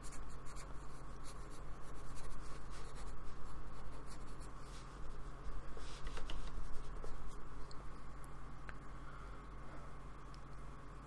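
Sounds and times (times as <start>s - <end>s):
paintbrush scratching on paper: 0.0s - 7.4s
low electrical hum: 0.0s - 11.0s.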